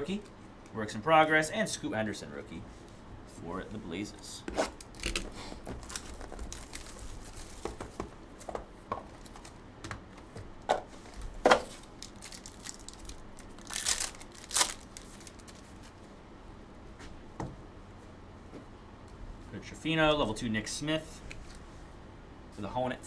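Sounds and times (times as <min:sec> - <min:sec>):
foil wrapper tearing and crinkling: 0:04.7 - 0:07.8, 0:11.7 - 0:15.9.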